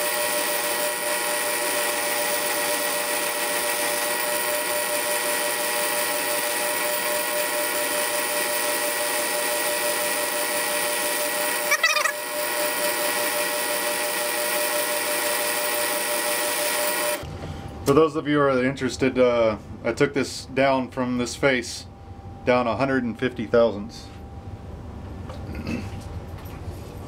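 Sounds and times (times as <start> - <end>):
metal lathe motor and belt whine: 0.0 - 17.2.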